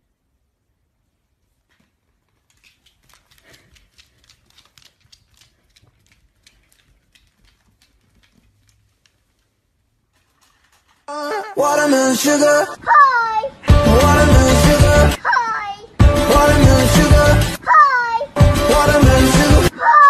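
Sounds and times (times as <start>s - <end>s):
puppy claws clicking on wood floor: 1.7s - 11.1s.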